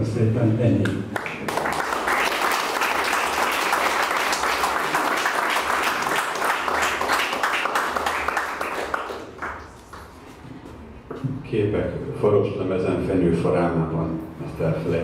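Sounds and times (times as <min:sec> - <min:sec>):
audience applauding: 0:01.2 - 0:10.2.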